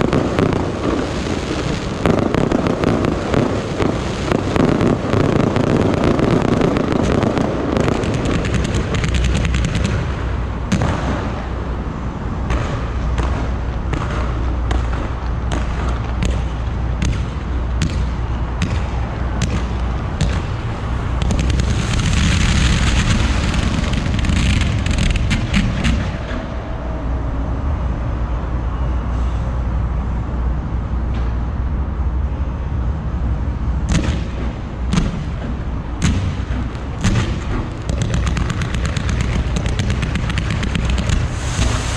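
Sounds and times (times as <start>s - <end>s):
fireworks hissing: 0.0s - 11.5s, 19.6s - 26.3s, 36.3s - 41.9s
fireworks bursting and crackling: 0.0s - 26.6s, 33.9s - 41.9s
deep rumble: 9.8s - 29.1s, 34.6s - 41.9s.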